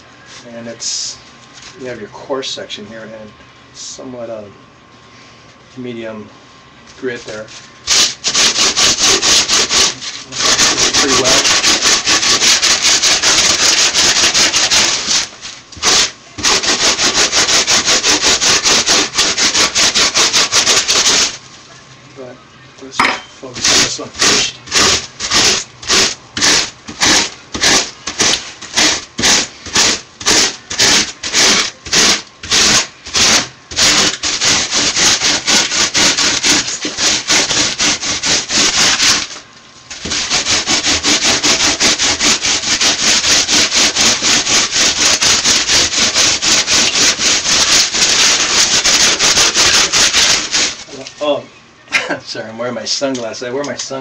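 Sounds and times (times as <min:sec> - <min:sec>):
rasp scraping styrofoam: 0:07.3 - 0:21.4, 0:23.4 - 0:51.1.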